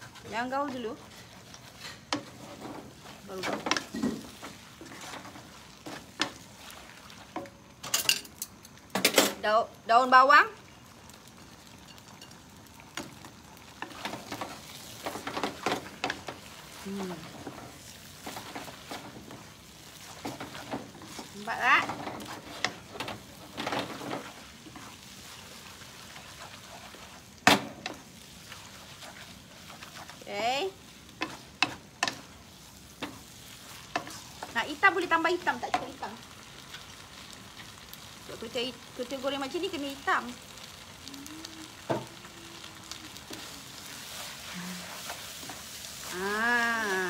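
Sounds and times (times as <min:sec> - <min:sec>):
wooden spatula stirring: 0:00.0 - 0:07.6, 0:13.7 - 0:37.8, 0:41.7 - 0:46.9
noodles sizzling in a wok: 0:00.0 - 0:47.0
person making drawn-out vocal sound: 0:41.1 - 0:42.9, 0:44.5 - 0:44.8, 0:46.1 - 0:47.0.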